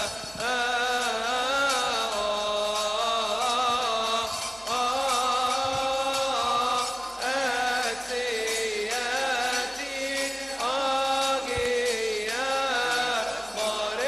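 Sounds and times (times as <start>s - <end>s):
solo voice chanting: 0.0s - 14.0s.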